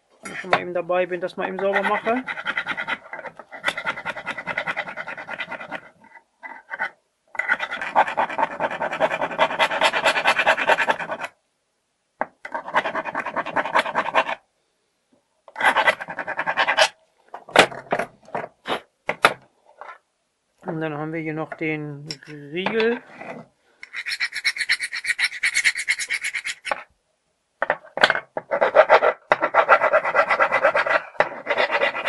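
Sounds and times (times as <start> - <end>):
scrubbing on steel: 23.0 - 26.9.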